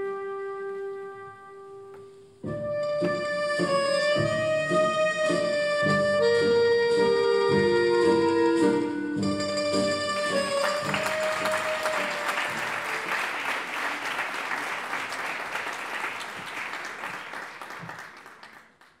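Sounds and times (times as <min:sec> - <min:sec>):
audience applauding: 0:09.8 - 0:19.0.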